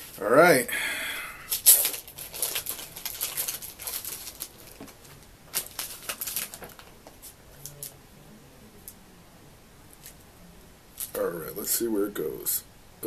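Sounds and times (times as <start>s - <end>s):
packaging rustling and crinkling: 1.5s - 8.0s.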